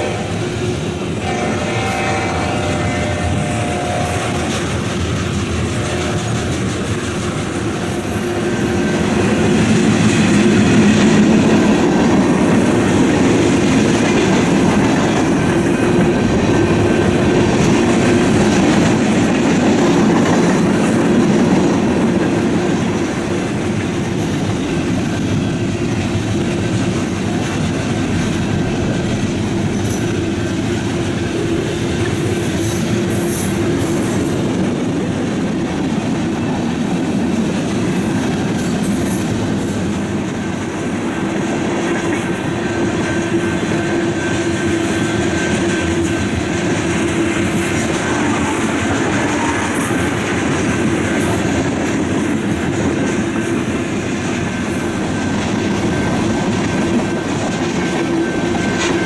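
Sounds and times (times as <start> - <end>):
train horn: 0.0 - 4.8, 5.5 - 6.6, 42.6 - 51.4
freight train cars rumbling: 0.0 - 59.0.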